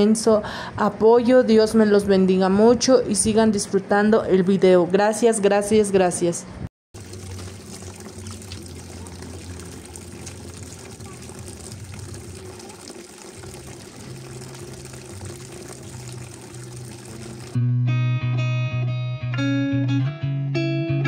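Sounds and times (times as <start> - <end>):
hose water running into plastic tub: 7.0 - 17.6.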